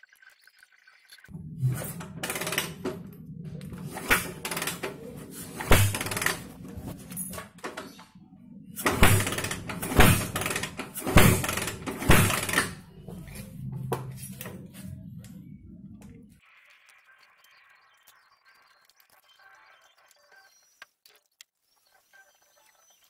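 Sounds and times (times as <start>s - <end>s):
low hum: 1.3s - 16.4s.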